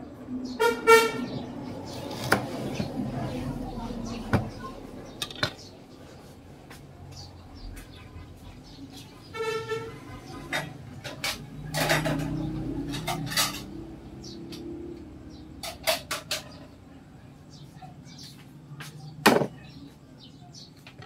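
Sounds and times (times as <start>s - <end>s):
sharp clicks and knocks: 5.2s - 5.7s.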